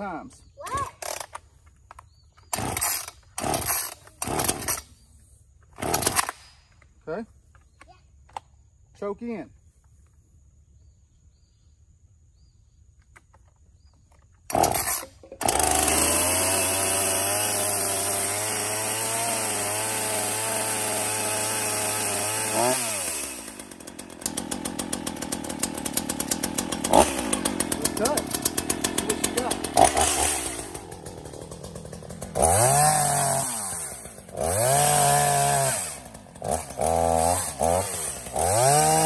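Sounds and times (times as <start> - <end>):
chainsaw starting and idling: 1.0 - 1.4, 2.1 - 5.0, 5.7 - 6.5, 13.4 - 39.0.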